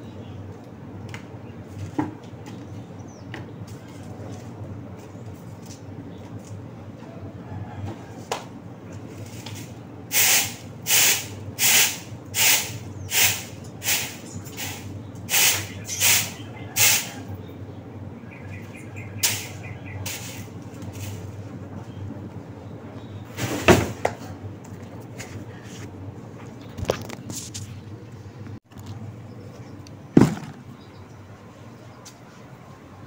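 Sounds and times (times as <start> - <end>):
broom sweeping: 9.1 - 17.2, 19.2 - 21.3, 23.3 - 23.8.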